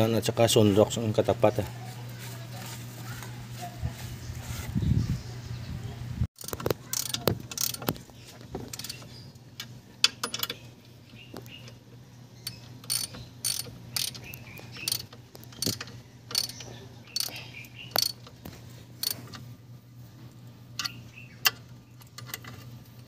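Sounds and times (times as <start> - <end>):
ratchet wrench clicking: 6.4 - 8.0, 8.7 - 10.6, 12.4 - 18.3, 19.0 - 19.4.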